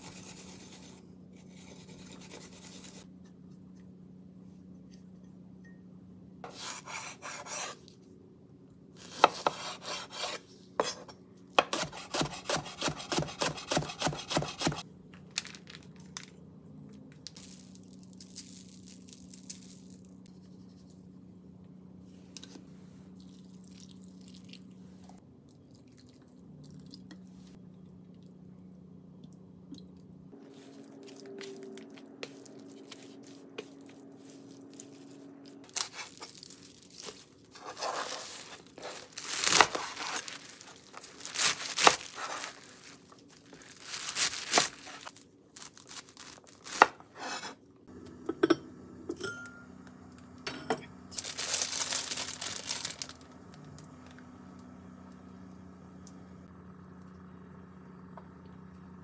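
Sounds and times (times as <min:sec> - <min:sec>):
knife cutting chives on a board: 0:09.0 - 0:11.0, 0:11.6 - 0:14.8
plastic bag crinkling: 0:15.2 - 0:16.3, 0:30.6 - 0:46.8, 0:51.1 - 0:53.6.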